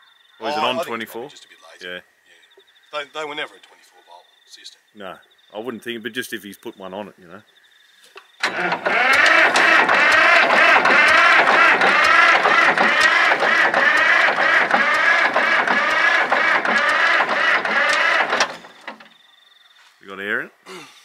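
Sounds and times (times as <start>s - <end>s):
diesel engine cranking with starter: 8.4s - 19.3s.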